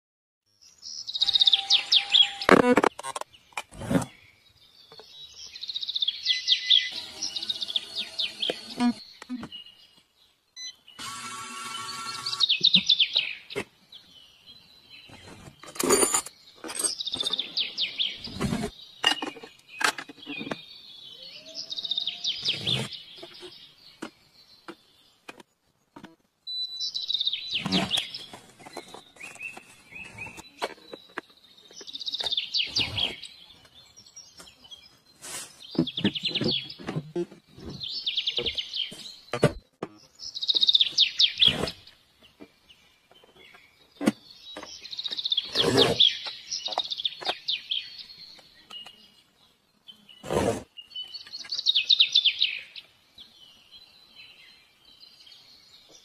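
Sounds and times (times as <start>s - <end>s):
bird-like trilled chirping: 0.7s - 9.8s, 10.5s - 13.5s, 14.4s - 25.0s, 26.5s - 37.0s, 37.6s - 41.9s, 49.9s - 52.9s.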